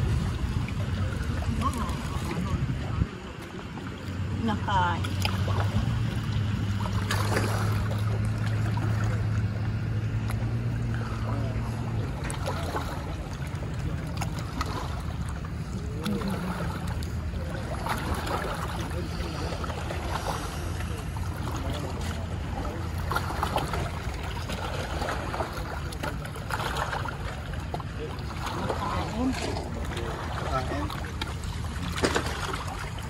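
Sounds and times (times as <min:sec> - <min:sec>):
boat engine humming: 0:00.0 - 0:33.0.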